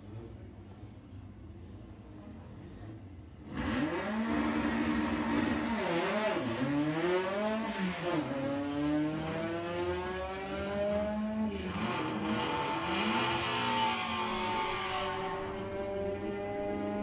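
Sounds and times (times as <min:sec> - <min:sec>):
drag car engine accelerating: 0:03.4 - 0:17.0.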